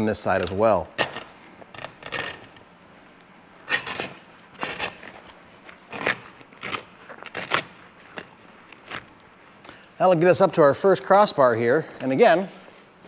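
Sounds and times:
fabric roof tearing in crackling rips: 3.7 - 9.2.

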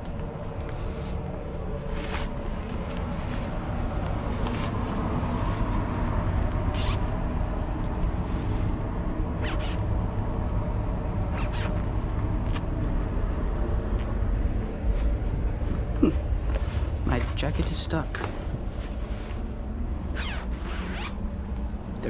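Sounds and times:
rustles and scuffs: 0.2 - 7.2.

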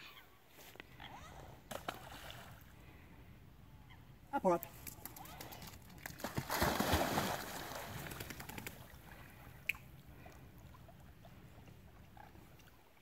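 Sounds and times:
water sloshing: 5.0 - 12.9
dog splashing into water: 5.1 - 9.0.

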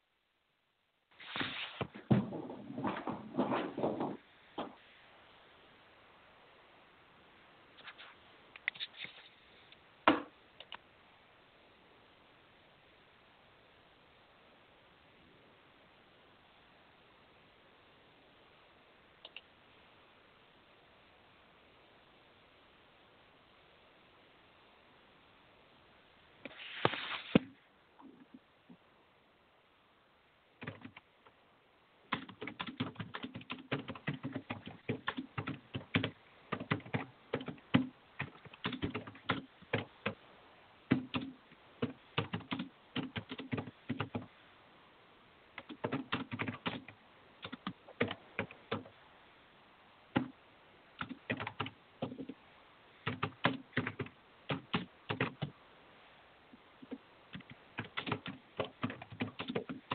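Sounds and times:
typing on computer keyboard: 30.6 - 31.1, 32.1 - 40.2, 40.9 - 44.3, 45.6 - 48.9, 51.0 - 52.4, 53.0 - 55.5, 56.8 - 59.9.

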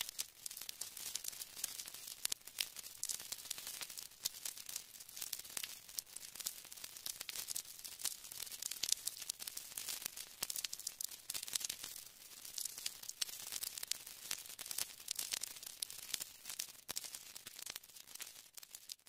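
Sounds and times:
vinyl record hiss: 0.0 - 8.2
vinyl crackles and pops: 0.0 - 19.0.

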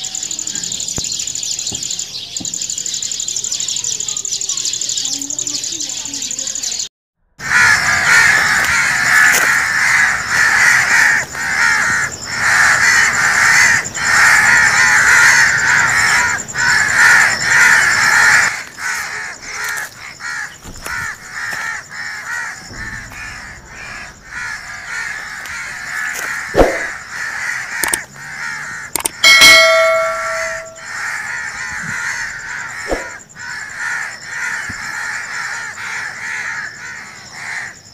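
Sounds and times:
flock of birds calling: 0.0 - 37.9
brief ringing tone: 29.2 - 30.9.

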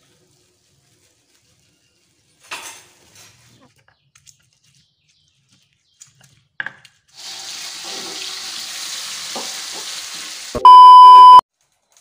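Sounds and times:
paste sizzling in hot oil: 7.2 - 10.6.

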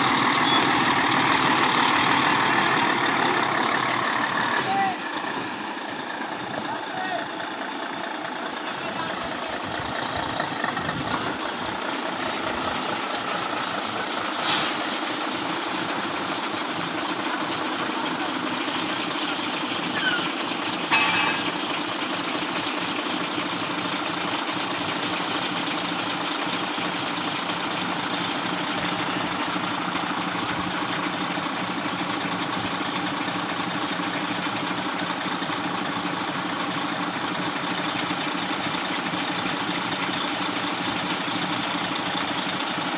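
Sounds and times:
diesel engine running: 0.0 - 42.9
metal clank: 20.9 - 21.6.

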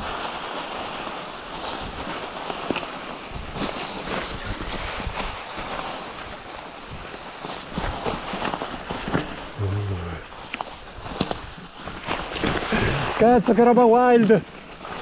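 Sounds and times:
tyres crunching dry leaves: 0.0 - 15.0.

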